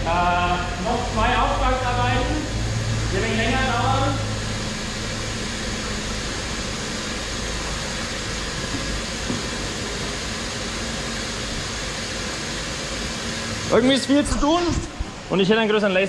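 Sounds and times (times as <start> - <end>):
extraction fan whooshing: 0.0 - 16.0.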